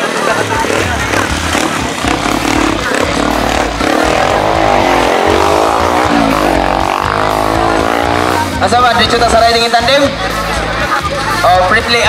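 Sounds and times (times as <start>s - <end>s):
dirt bike engine revving: 0.0s - 9.5s.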